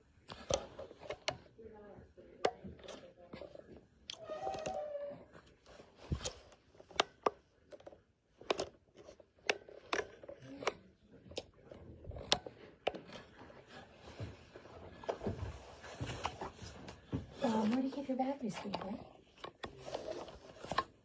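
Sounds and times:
plastic radio clicks and taps: 0.2 - 1.5, 6.0 - 13.5, 18.5 - 21.0.

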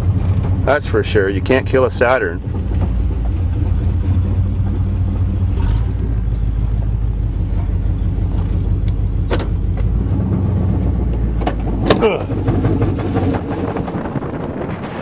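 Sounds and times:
truck engine and road drone: 0.0 - 15.0.

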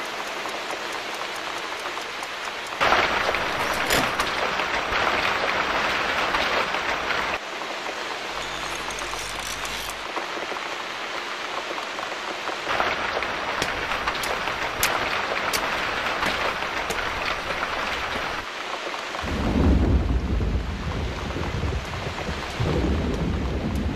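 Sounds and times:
steady rain: 0.0 - 23.9
thunder rumble: 12.7 - 18.5, 19.2 - 23.9.

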